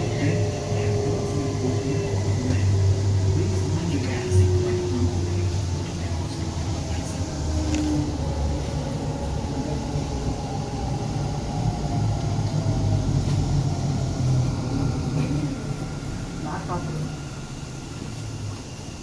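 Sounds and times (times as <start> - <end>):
faint whining tones: 0.0 - 19.0
train rumbling along track: 0.0 - 19.0.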